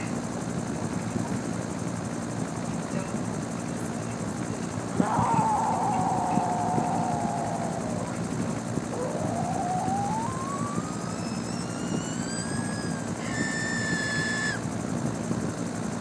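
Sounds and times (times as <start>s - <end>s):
machine rumble with rising whine: 4.4s - 16.0s.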